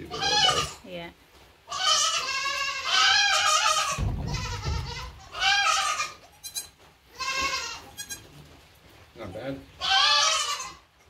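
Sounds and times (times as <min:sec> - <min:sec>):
goat bleating: 0:00.0 - 0:00.8, 0:01.7 - 0:08.4, 0:09.8 - 0:10.9.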